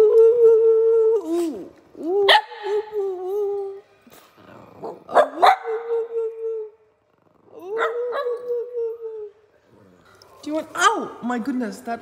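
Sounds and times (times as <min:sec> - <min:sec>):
dog barking: 0:05.1 - 0:05.9
dog yelping and howling: 0:07.6 - 0:09.4.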